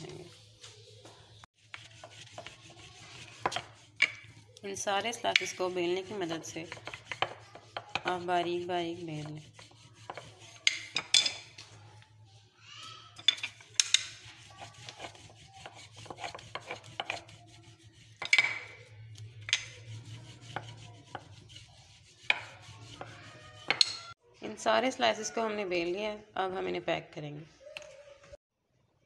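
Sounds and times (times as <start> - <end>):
rolling pin scraping on stone: 1.6 - 11.7, 13.2 - 24.2.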